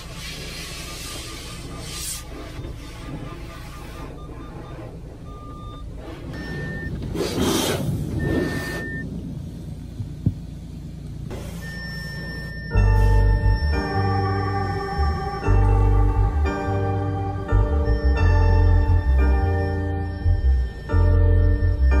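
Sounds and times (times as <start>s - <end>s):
hose water spraying on car: 0.0s - 5.3s, 5.9s - 9.2s
parking sensor beeps: 0.0s - 9.1s, 11.3s - 22.0s
low rumble: 1.6s - 22.0s.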